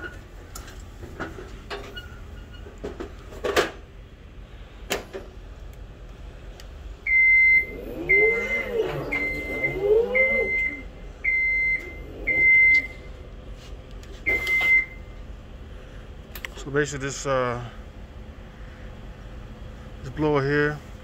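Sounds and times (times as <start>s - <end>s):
fans humming: 0.0s - 21.0s
high electronic beep: 7.1s - 13.1s, 14.3s - 15.0s.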